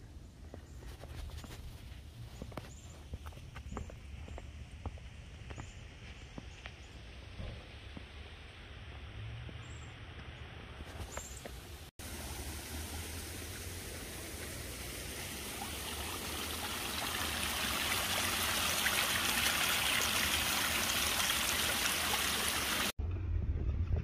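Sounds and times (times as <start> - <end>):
stream trickling over stones: 11.0 - 23.0.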